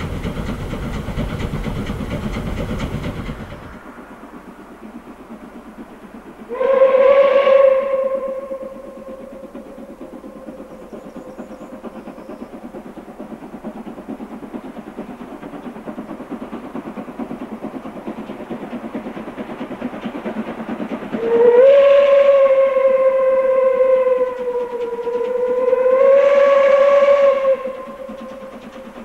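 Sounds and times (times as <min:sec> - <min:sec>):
steam locomotive exhaust beats: 0:00.0 - 0:29.0
steam whistle: 0:06.5 - 0:09.4, 0:21.2 - 0:28.4.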